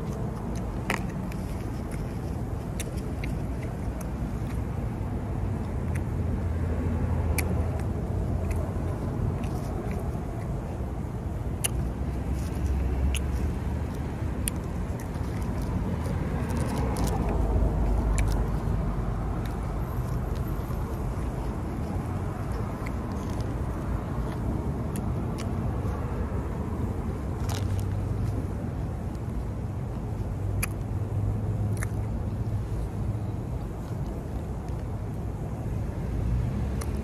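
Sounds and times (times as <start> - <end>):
chewing clicks: 0.0 - 32.5, 33.5 - 35.2, 36.7 - 37.0
road traffic rumble: 0.0 - 37.0.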